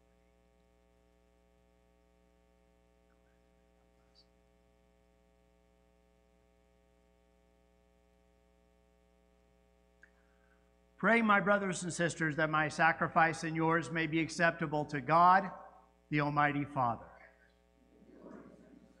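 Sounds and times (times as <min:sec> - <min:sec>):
electrical mains hum: 0:00.0 - 0:19.0.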